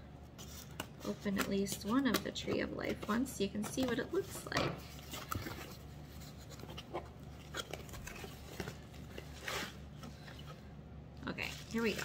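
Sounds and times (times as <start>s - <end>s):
bubble wrap crinkling: 5.0s - 10.6s, 11.2s - 12.0s
bubble wrap rustle: 11.2s - 12.0s.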